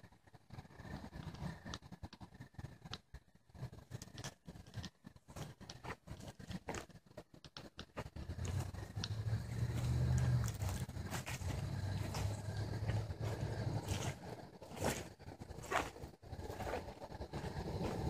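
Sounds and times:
low steady hum: 0.0s - 18.0s
footsteps on dry ground: 7.9s - 18.0s.

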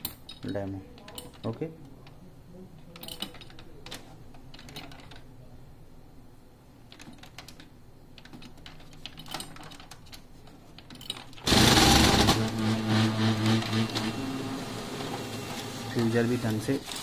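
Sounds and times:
laser printer running: 11.5s - 17.0s.

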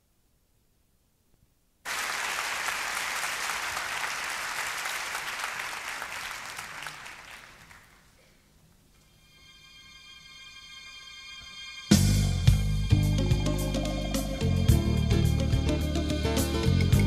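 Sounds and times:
faint tape hiss: 0.0s - 17.0s
audience applauding: 1.9s - 8.2s.

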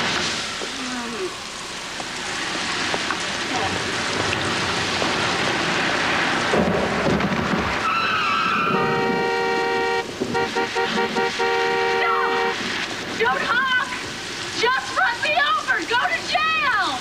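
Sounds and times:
heavy rain on street: 0.0s - 17.0s
car horn honking: 8.7s - 12.6s.

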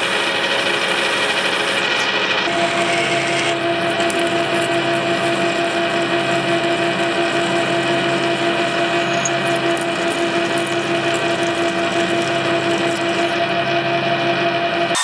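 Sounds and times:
metal lathe humming: 0.0s - 15.0s.

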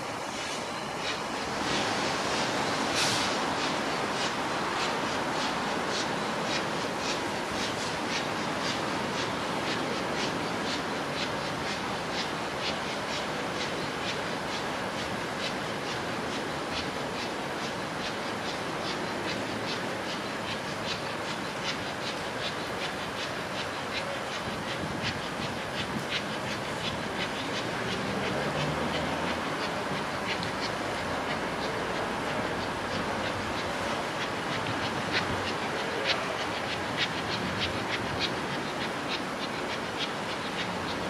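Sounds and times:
steam locomotive rumble: 0.0s - 41.0s
steam escaping: 0.2s - 9.8s.

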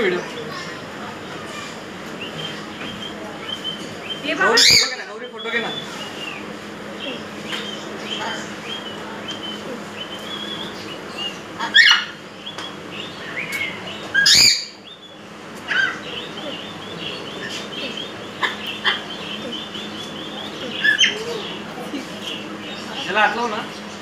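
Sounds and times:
caged birds chirping: 0.0s - 24.0s
loud harsh bird squawks: 1.4s - 12.3s, 13.5s - 14.8s, 15.6s - 21.6s.

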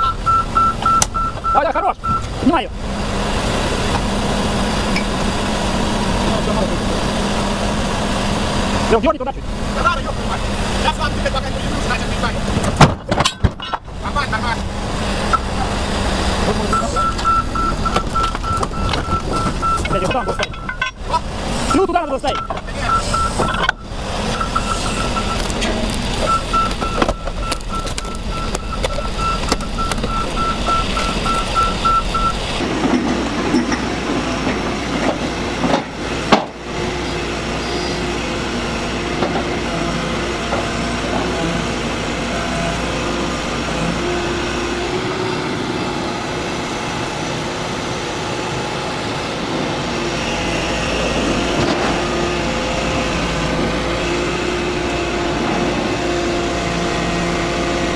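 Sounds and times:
warning beep: 0.0s - 2.3s, 16.7s - 20.9s, 21.7s - 25.5s, 26.3s - 32.4s
excavator diesel engine running: 0.0s - 12.8s, 13.8s - 57.9s.

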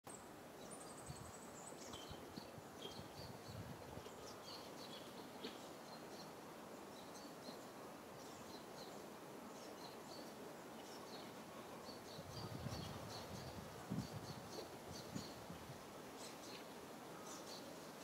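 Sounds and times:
birds chirping: 0.1s - 15.5s
low steady hiss: 0.1s - 18.0s.

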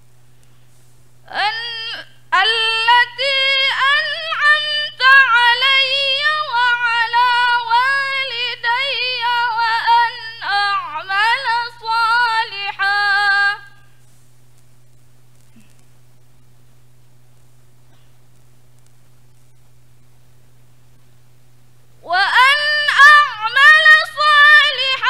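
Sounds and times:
low steady hum: 0.0s - 25.0s
woman reciting melodically: 1.3s - 14.0s, 22.0s - 25.0s.

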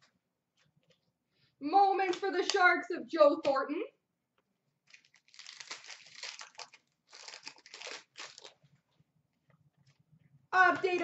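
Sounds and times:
card packaging rustling and crinkling: 4.8s - 8.6s.

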